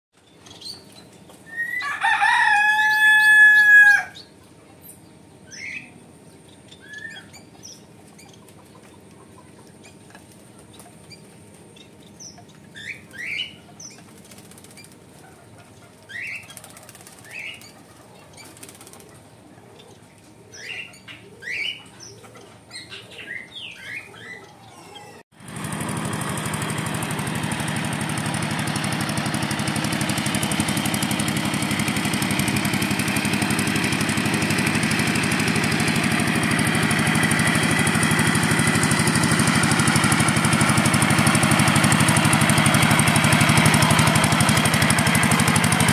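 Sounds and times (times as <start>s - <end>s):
distant engine running: 0.2s - 24.6s, 25.4s - 45.9s
wind: 0.2s - 45.9s
rooster crowing: 1.5s - 4.3s.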